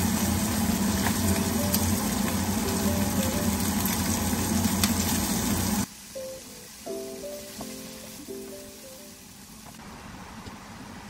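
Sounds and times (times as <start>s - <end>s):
low even hum: 0.0s - 5.9s
meat sizzling in a frying pan: 0.0s - 9.6s.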